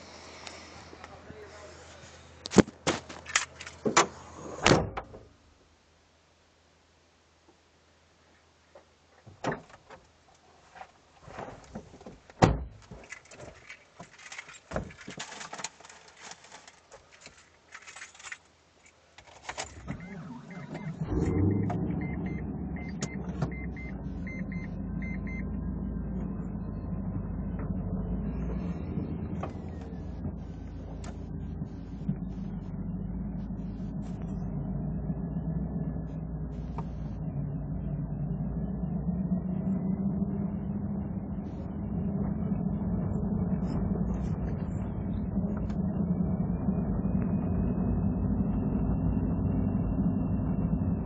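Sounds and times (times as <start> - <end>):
rotary engine low hum: 19.6 - 51.0.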